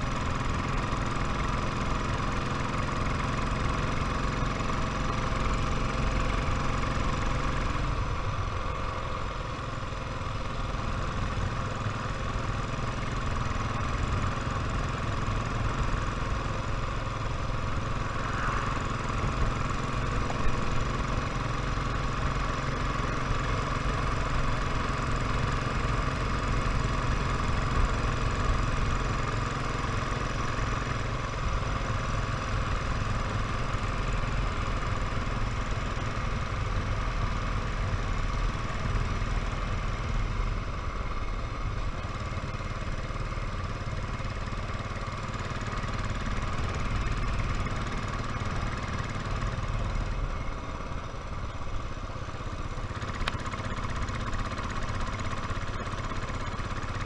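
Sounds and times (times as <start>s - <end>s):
motorcycle engine running: 0.0s - 57.0s.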